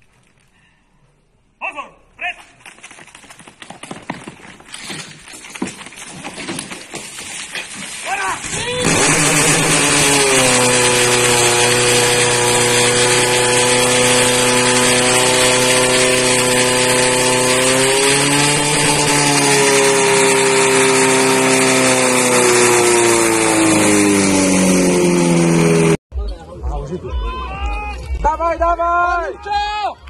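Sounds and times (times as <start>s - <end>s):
pump engine running hard: 8.8s - 26.0s.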